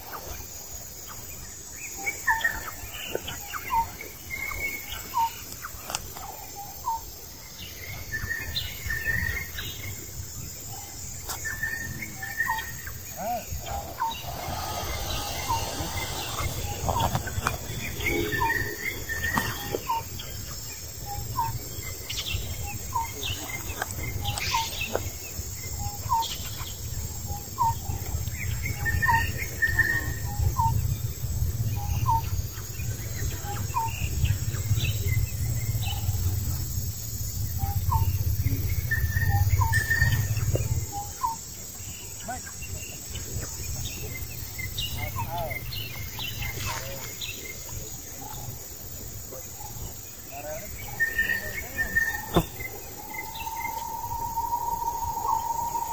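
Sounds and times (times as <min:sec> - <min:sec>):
bird chirping: 0:10.7 - 0:25.0, 0:49.6 - 0:55.9
low rumble: 0:12.6 - 0:20.8.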